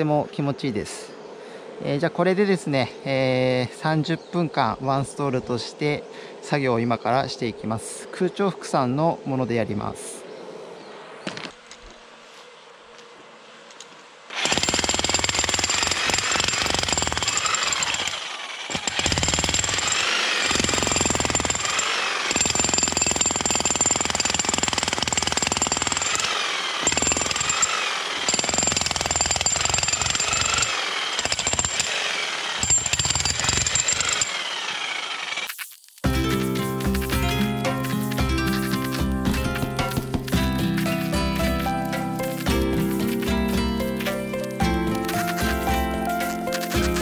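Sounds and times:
electric demolition hammer: 14.3s - 35.6s.

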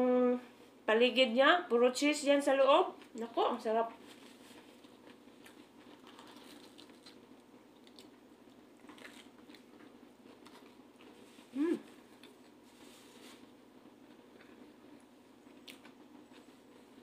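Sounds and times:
small crunches: 4.0s - 14.7s
chewing pizza: 4.0s - 17.0s
person humming: 11.5s - 12.0s.

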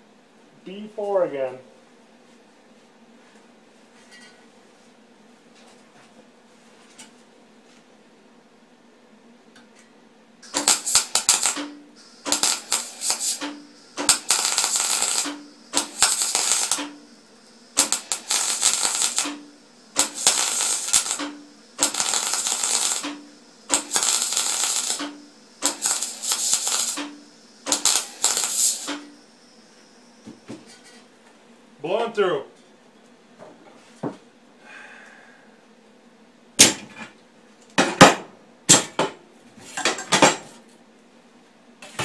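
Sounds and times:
welding arc crackling: 10.4s - 30.8s.

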